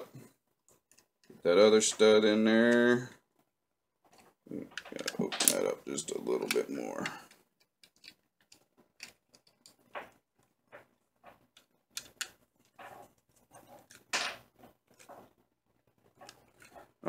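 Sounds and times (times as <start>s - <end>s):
clicks and scrapes of wire on switch: 6.4s - 14.1s, 16.2s - 17.0s.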